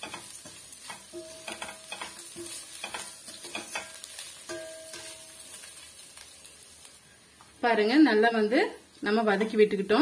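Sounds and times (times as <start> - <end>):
spatula knocking ringing pan: 0.0 - 5.6
metal spatula scraping a pan: 0.0 - 5.9
oil sizzling: 0.0 - 10.0.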